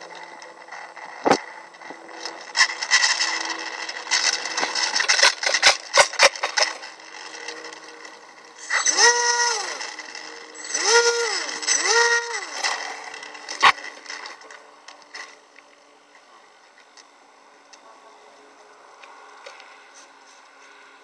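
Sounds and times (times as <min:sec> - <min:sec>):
model plane electric motor whine: 0:00.0 - 0:16.1.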